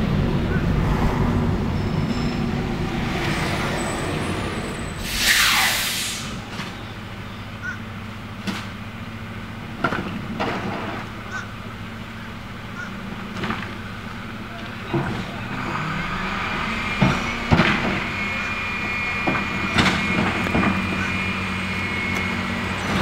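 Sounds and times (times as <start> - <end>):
garbage truck diesel engine: 0.0 - 23.0
air brakes hissing: 1.8 - 6.8.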